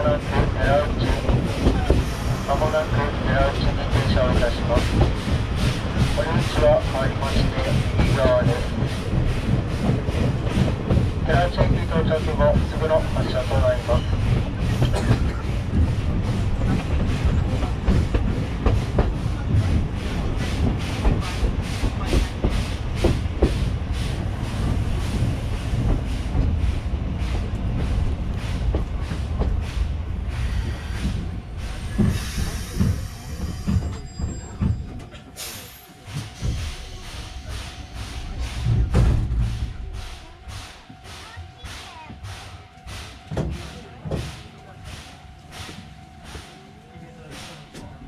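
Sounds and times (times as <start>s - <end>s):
train wheels clattering on rails: 0.0s - 48.0s.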